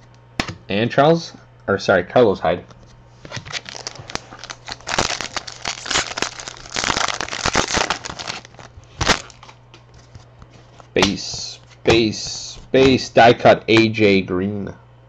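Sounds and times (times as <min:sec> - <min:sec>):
foil wrapper crinkling and tearing: 0:03.3 - 0:09.6.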